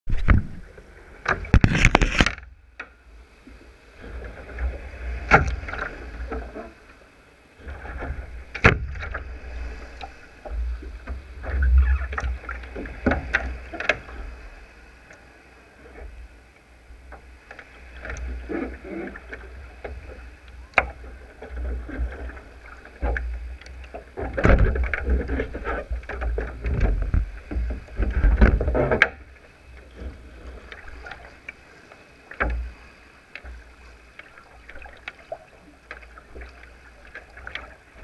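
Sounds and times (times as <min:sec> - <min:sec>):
knocks and rattles of gear on hull: 0:00.1 - 0:03.0, 0:04.0 - 0:06.8, 0:07.6 - 0:14.6, 0:17.0 - 0:38.0
wind rumbling on microphone: 0:00.1 - 0:06.8, 0:07.6 - 0:14.9, 0:15.8 - 0:31.4.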